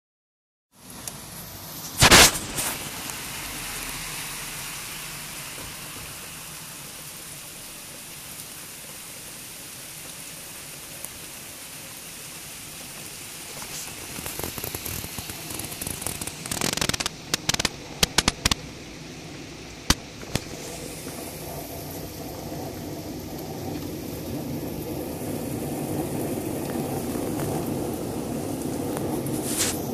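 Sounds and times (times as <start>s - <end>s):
rain falling on wet paving: 0.8s - 29.9s
sharp clicks and crackles: 1.8s - 3.2s, 13.5s - 18.7s, 19.9s - 20.6s.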